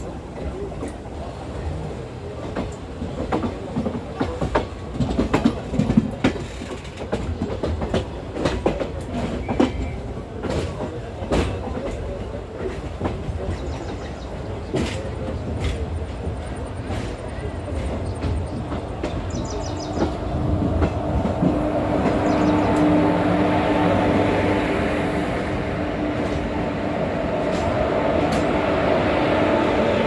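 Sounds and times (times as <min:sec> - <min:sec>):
train rumble: 0:00.0 - 0:30.0
train wheels clickety-clack: 0:00.0 - 0:30.0.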